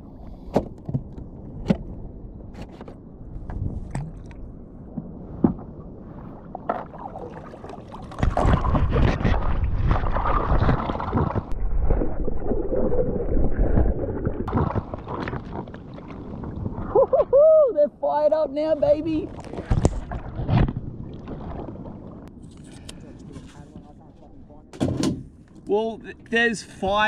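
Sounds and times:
water sloshing: 3.5s - 17.3s, 18.9s - 23.9s.

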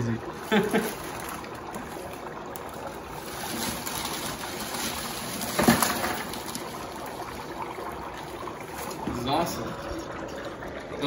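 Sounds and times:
dry ice bubbling in water: 0.0s - 11.0s.

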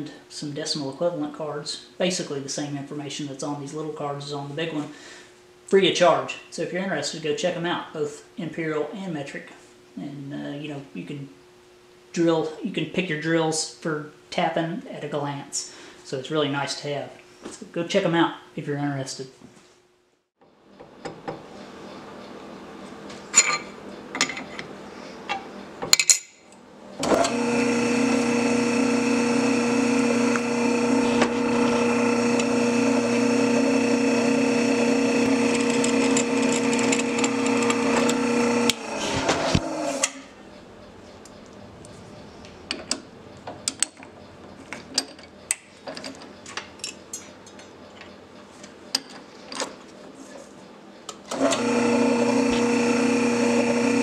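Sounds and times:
drill press running: 27.0s - 40.2s, 51.3s - 54.0s
drill winding down: 27.1s - 40.1s, 51.3s - 54.0s
clicks and knocks of tools: 42.7s - 49.8s.

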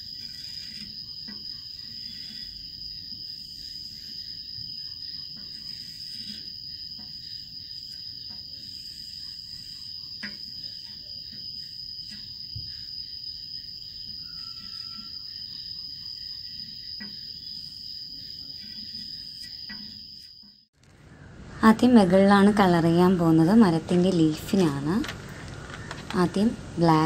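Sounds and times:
chalk scratching on board: 0.0s - 12.4s
high-pitched insect trill: 0.0s - 20.7s.

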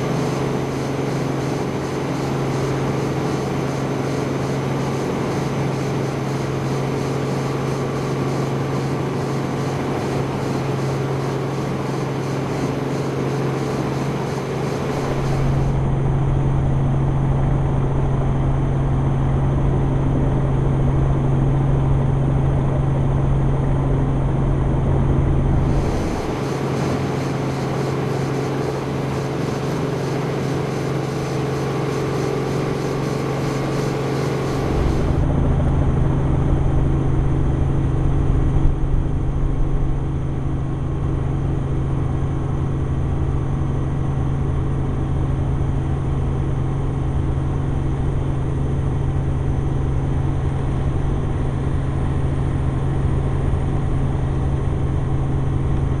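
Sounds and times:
helicopter engine and rotor drone: 0.0s - 56.0s.

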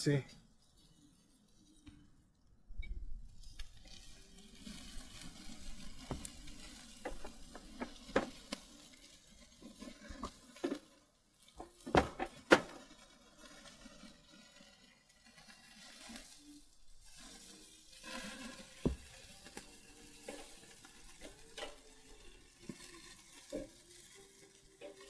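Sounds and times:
chicken sizzling on grill: 0.0s - 2.1s, 3.0s - 25.0s
clicks and knocks at grill: 6.0s - 8.7s, 10.1s - 13.0s, 20.2s - 21.9s.

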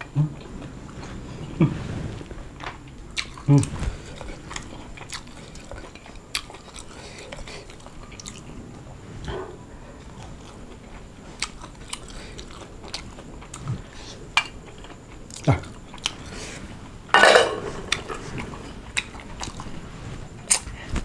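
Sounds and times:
person chewing crispy food: 3.2s - 8.5s, 10.1s - 16.6s, 17.9s - 19.8s.

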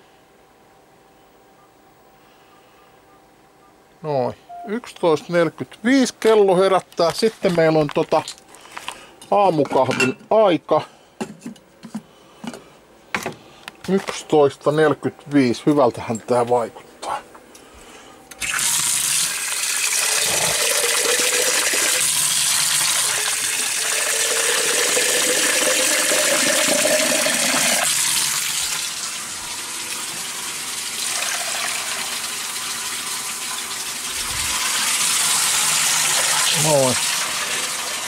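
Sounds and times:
tap water filling a glass carafe: 29.8s - 38.0s.

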